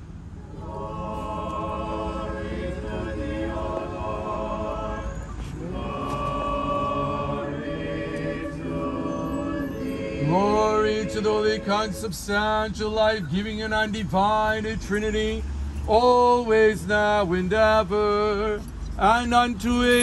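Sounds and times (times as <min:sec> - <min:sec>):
choir chanting in harmony: 0:00.4 - 0:12.7.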